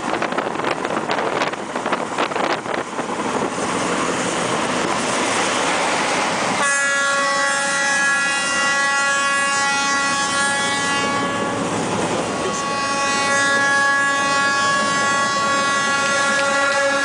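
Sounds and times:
train running noise: 0.0s - 17.0s
locomotive air horn blast: 6.6s - 11.8s, 12.4s - 17.0s.

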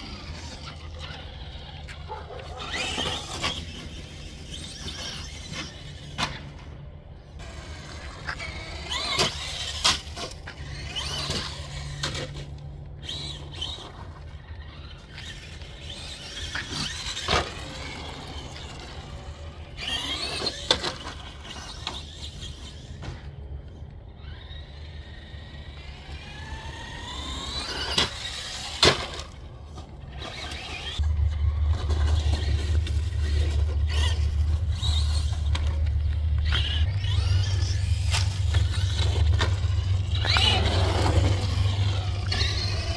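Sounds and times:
rc truck motor whining: 0.0s - 42.9s
low steady rumble: 22.9s - 42.9s.

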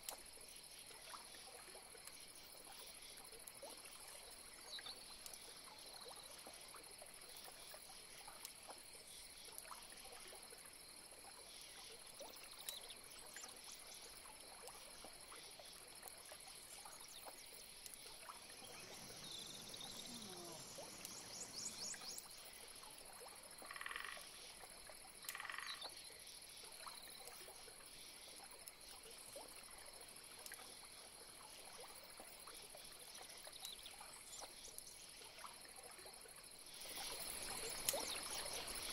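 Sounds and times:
faint chirps: 16.6s - 22.7s
frog calls: 18.4s - 22.2s, 23.6s - 24.3s, 25.2s - 25.9s.

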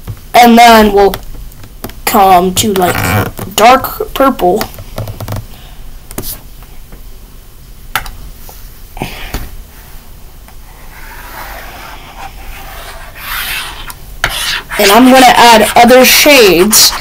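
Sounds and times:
stylus rubbing across screen: 10.8s - 17.0s.

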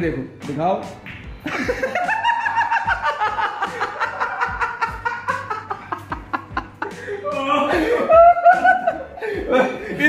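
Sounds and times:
steady drum beat: 0.4s - 7.0s.

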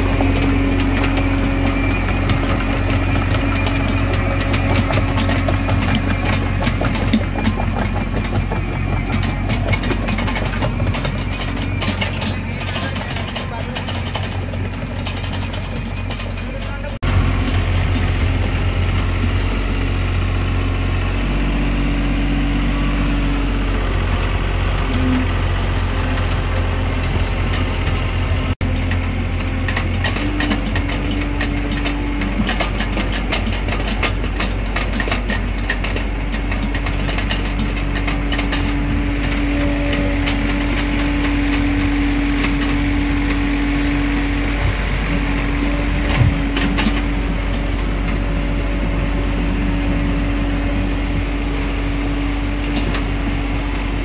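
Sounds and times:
excavator diesel engine running: 0.0s - 54.0s
hydraulic hum shifting pitch: 37.7s - 54.0s.

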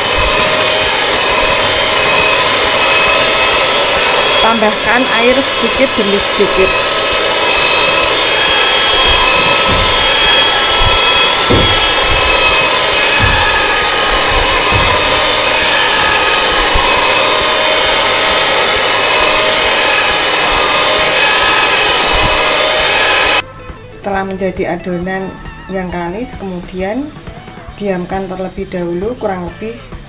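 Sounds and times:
electric hand mixer whining: 0.0s - 23.5s
low knocks: 9.0s - 15.6s.

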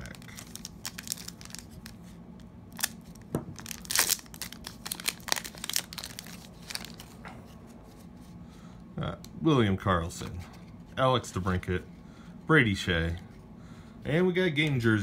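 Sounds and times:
foil pack crinkling and tearing: 0.0s - 7.2s.

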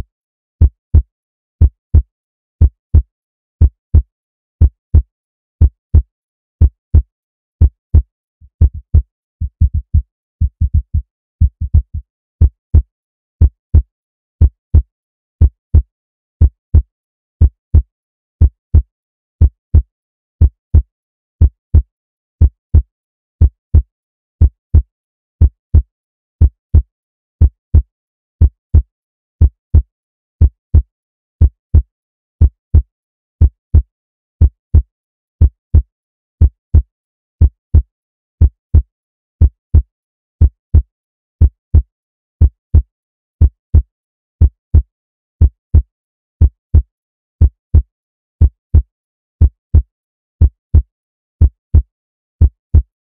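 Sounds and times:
heartbeat thumps: 5.6s - 14.8s.

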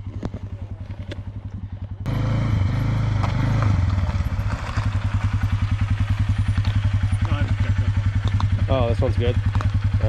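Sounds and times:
atv engine revving: 0.0s - 10.0s.

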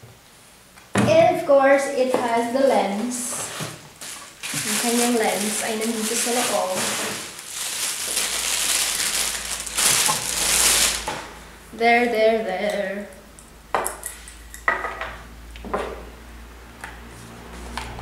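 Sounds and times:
plastic wrapping crinkling: 3.3s - 11.4s.

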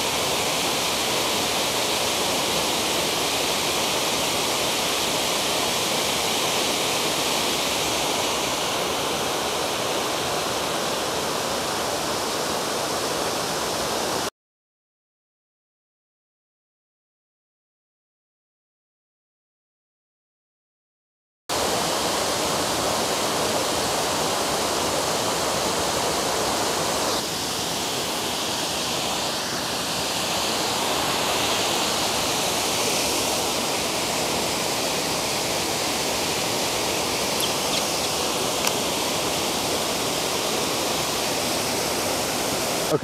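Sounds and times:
waterfall rushing over rocks: 0.0s - 14.3s, 21.5s - 43.0s.

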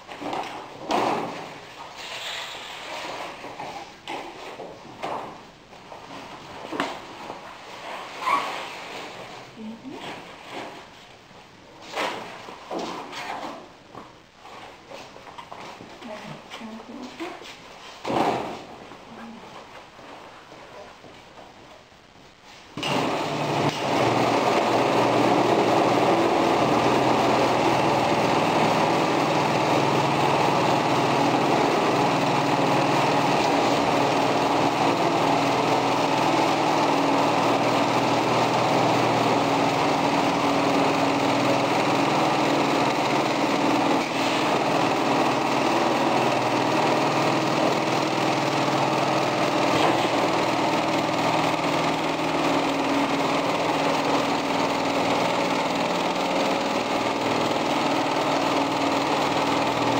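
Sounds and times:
sewing machine running: 22.8s - 59.9s.

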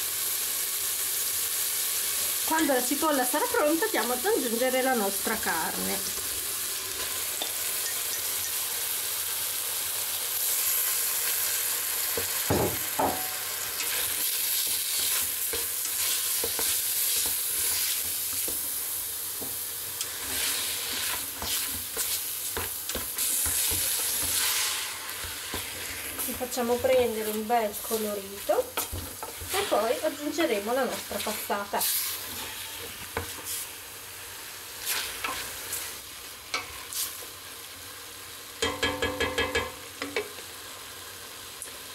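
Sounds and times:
meat sizzling in a pot: 0.0s - 41.9s
utensil scraping and knocking pot: 27.8s - 31.4s.

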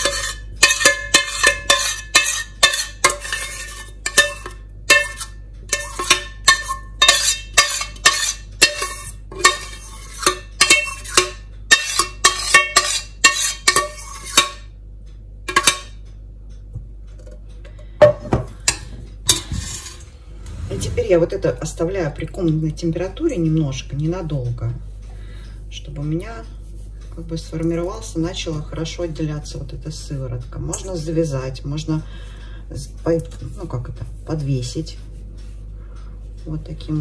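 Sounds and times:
metal spoon scraping steel pot: 0.0s - 14.7s, 18.7s - 21.2s.

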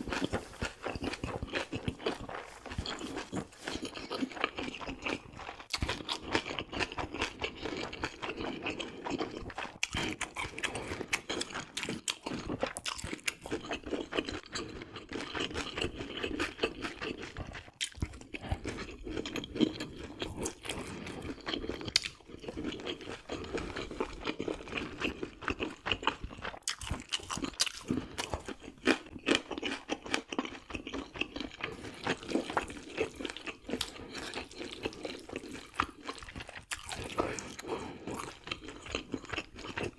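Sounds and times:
person chewing food: 0.0s - 39.9s.

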